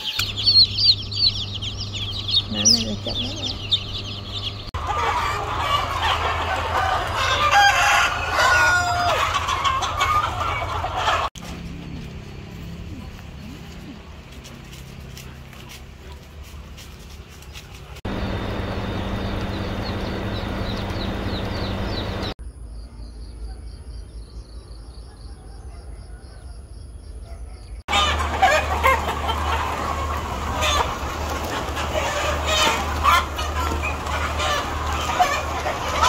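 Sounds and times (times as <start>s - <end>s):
chickens clucking: 0.0s - 12.1s, 12.9s - 22.4s, 27.9s - 36.0s
low hum: 18.1s - 22.4s.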